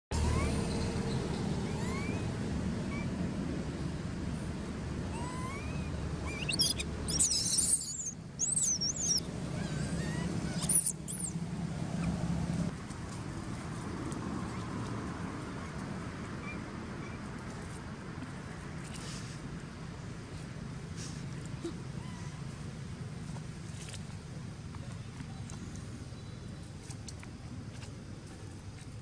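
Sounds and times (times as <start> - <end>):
baby monkey screaming: 0.2 - 0.6, 1.6 - 2.3, 5.1 - 11.4.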